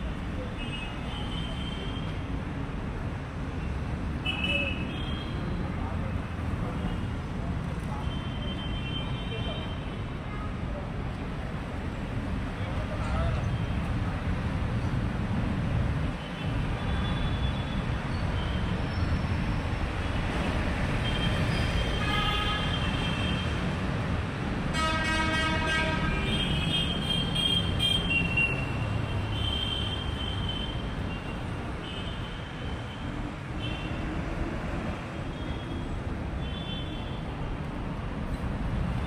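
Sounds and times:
street traffic engine rumble: 0:00.0 - 0:39.0
vehicle horns honking: 0:24.7 - 0:28.6.

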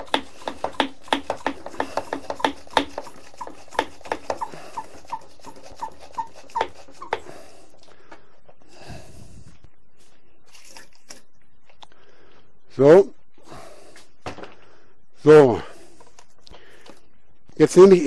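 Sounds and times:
hand pump plunger clicking and squeaking: 0:00.0 - 0:07.3.

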